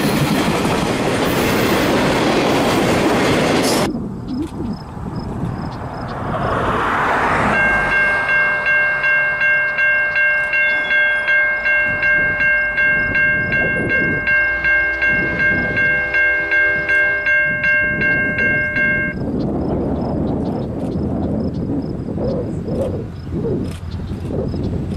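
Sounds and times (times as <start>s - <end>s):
crossing warning bell ringing: 7.3s - 19.4s.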